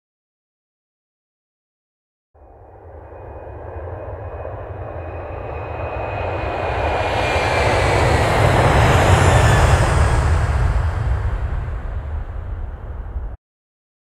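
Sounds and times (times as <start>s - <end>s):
aircraft engine rushing: 2.4s - 13.4s
high whine falling in pitch: 2.4s - 13.4s.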